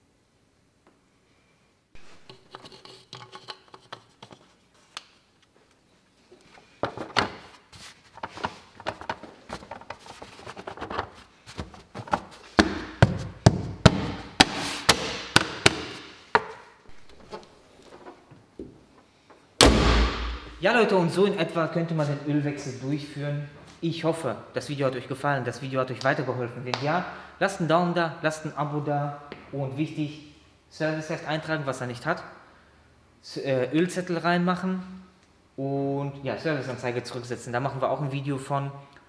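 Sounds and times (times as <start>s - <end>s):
plastic cover knocking and rubbing: 8.1s - 17.4s.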